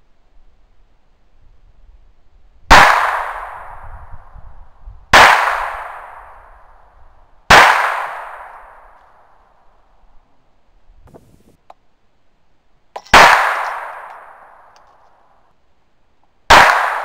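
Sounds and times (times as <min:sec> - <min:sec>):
echoing gunshots: 0:02.7 - 0:04.3, 0:05.1 - 0:06.7, 0:07.5 - 0:09.2, 0:13.0 - 0:14.8, 0:16.5 - 0:17.0.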